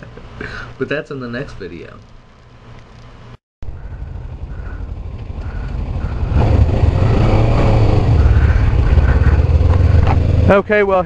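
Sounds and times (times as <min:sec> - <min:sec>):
motorcycle engine idling: 0:03.6 - 0:10.8.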